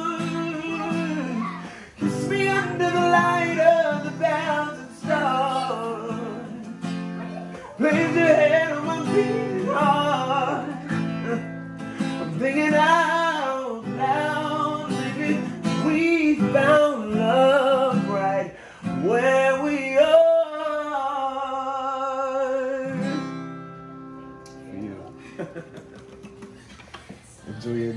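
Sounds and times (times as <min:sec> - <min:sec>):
man singing: 0:00.0 - 0:23.4
strummed acoustic guitar: 0:00.0 - 0:27.9.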